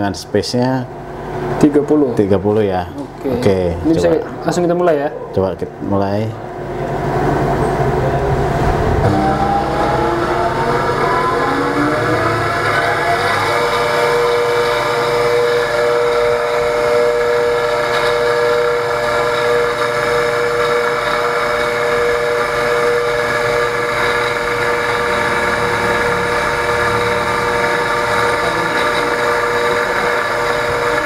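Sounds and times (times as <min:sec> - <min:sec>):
coil-winding machine motor whine: 0:06.5 - 0:31.0.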